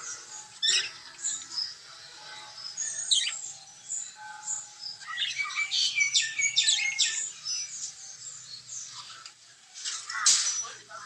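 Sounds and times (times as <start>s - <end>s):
budgerigars chattering and chirping: 0.0s - 9.2s.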